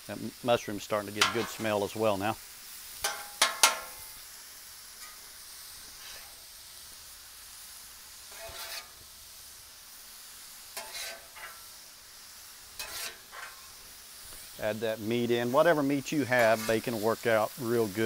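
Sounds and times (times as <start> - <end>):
potatoes sizzling on a griddle: 0.0 - 18.0
metal spatula scraping griddle: 1.2 - 1.9, 5.0 - 6.5, 8.2 - 9.1, 10.7 - 11.8, 12.7 - 13.8, 16.1 - 17.3.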